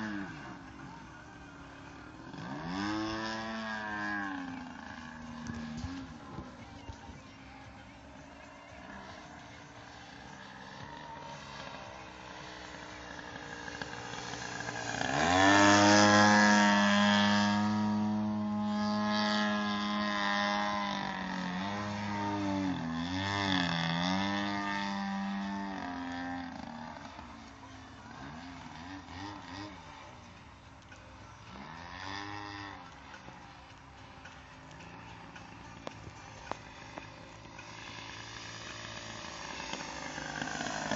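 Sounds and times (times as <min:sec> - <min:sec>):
model plane engine: 0:00.0 - 0:40.9.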